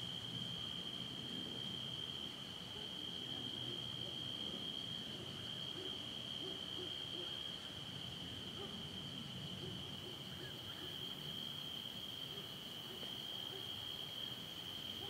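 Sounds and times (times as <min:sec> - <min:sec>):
night insects chorus: 0:00.0 - 0:15.0.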